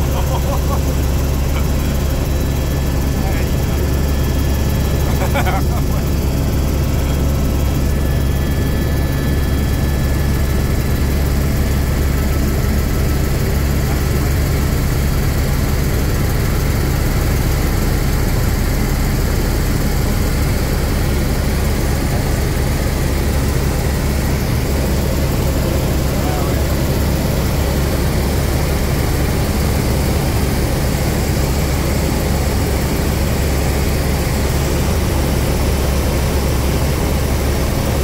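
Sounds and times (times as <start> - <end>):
low hum: 0.0 - 15.8
helicopter turbine and rotors droning: 0.0 - 38.0.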